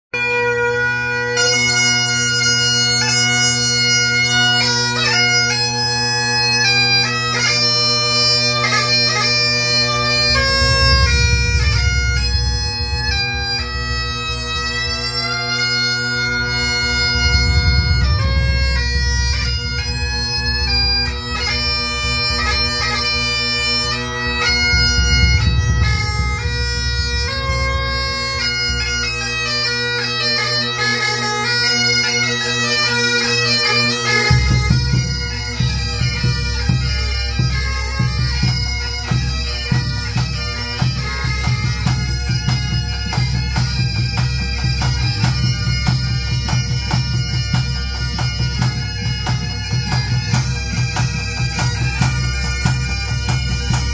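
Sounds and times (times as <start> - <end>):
bagpipes playing: 0.2 - 53.9
bass drum: 9.8 - 15.4, 16.3 - 29.4, 41.4 - 53.9
snare drums: 40.9 - 53.9.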